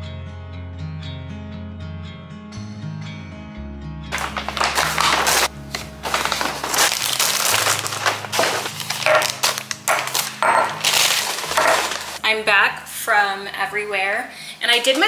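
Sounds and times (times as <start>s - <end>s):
paper bag rustling and crinkling: 4.1s - 12.2s.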